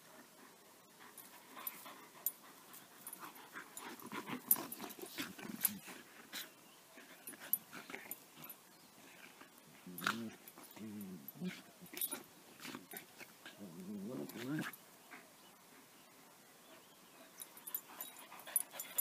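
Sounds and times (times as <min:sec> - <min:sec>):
dogs panting: 0:00.1 - 0:15.9, 0:16.7 - 0:19.0
dogs play growling: 0:01.0 - 0:15.2, 0:17.3 - 0:19.0
dogs snapping and scuffling: 0:02.8 - 0:06.4, 0:09.4 - 0:14.8.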